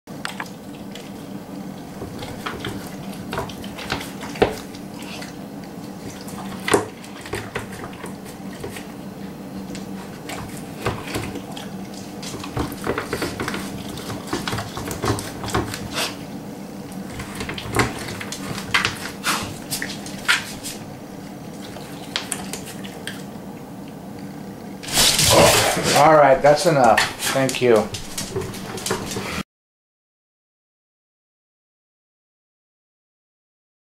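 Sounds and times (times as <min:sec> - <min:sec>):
dog licking and chewing: 0:09.7 - 0:16.2, 0:17.0 - 0:23.4.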